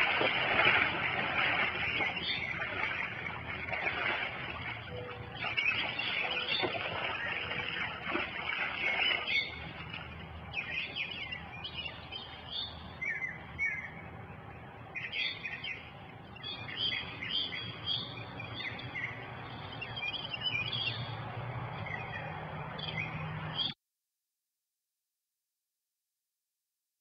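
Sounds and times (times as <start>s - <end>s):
steady low hum: 0.0s - 22.7s
small birds chirping: 1.4s - 4.0s, 10.4s - 23.8s.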